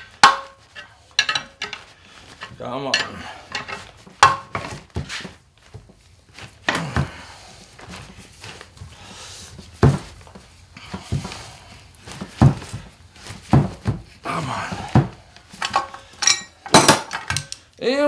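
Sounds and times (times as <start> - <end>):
sharp metal knocks: 0.2 - 0.6.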